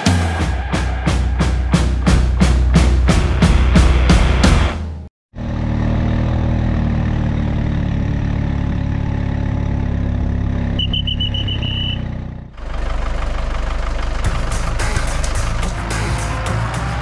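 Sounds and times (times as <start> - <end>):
vehicle engine running: 0.6 - 17.0
high beeps: 10.8 - 12.0.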